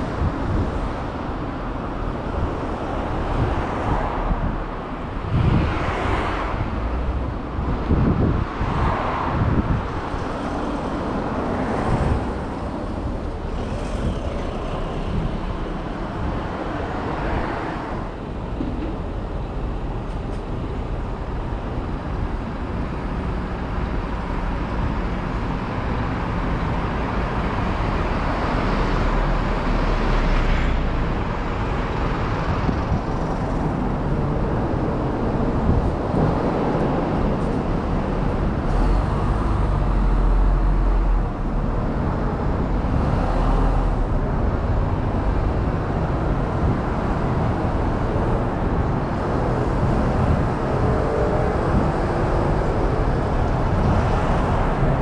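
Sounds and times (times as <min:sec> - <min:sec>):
road traffic rumble: 0:00.0 - 0:55.0.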